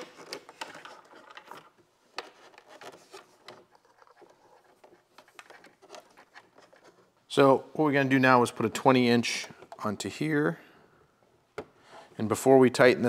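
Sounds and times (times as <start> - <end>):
plastic parts clicking: 0.0 - 6.9.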